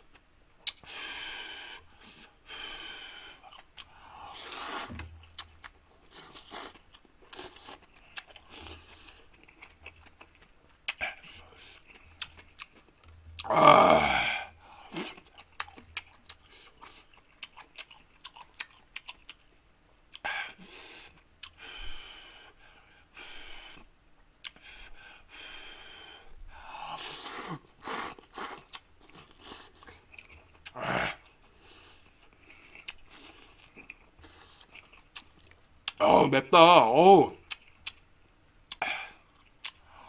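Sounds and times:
wet chewing and lip-smacking: 0.1s - 0.9s, 3.4s - 13.5s, 15.0s - 20.3s, 21.0s - 21.6s, 24.4s - 24.7s, 27.1s - 36.0s, 37.4s - 38.1s, 38.7s - 39.9s.

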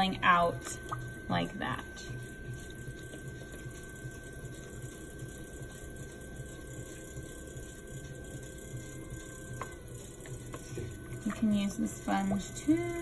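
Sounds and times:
pottery wheel motor humming: 0.0s - 13.0s.

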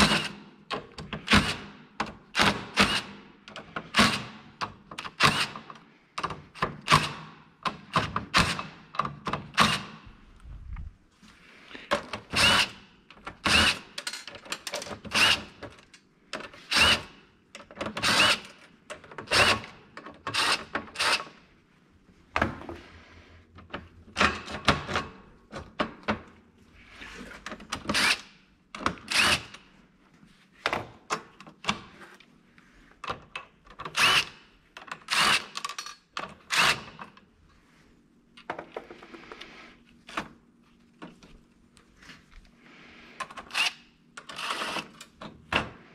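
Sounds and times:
cordless driver driving screws: 17.8s - 18.6s, 27.8s - 29.6s, 33.8s - 34.4s, 43.4s - 45.1s.

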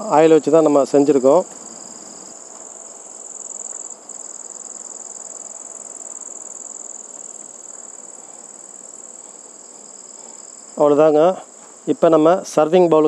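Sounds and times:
high-pitched insect trill: 0.0s - 13.0s.

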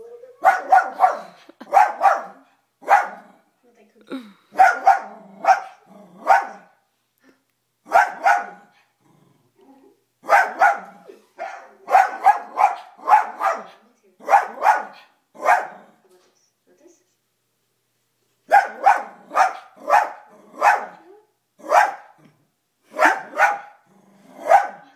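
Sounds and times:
dog barking: 0.4s - 3.3s, 4.6s - 6.8s, 7.9s - 8.7s, 10.2s - 15.8s, 18.5s - 21.0s, 21.6s - 22.2s, 22.9s - 23.8s, 24.4s - 24.9s.

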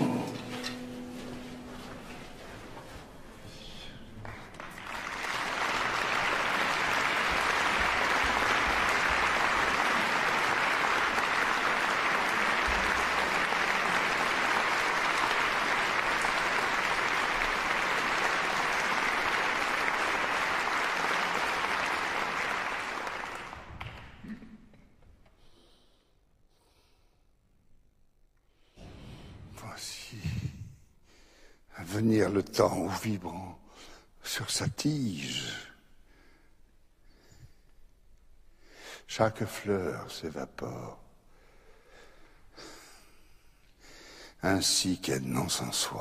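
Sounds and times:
audience applauding: 0.0s - 0.8s, 4.1s - 24.5s.

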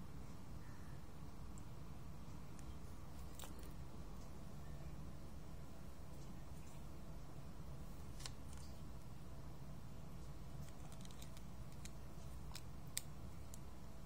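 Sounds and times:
low steady hum: 0.0s - 14.0s
plastic toy pieces clicking: 10.6s - 13.6s.

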